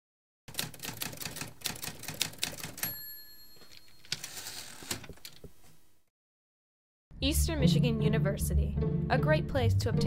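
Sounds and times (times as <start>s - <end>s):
typewriter keys clacking: 0.5s - 2.9s, 3.6s - 5.4s
carriage-return bell ding: 2.8s - 4.3s.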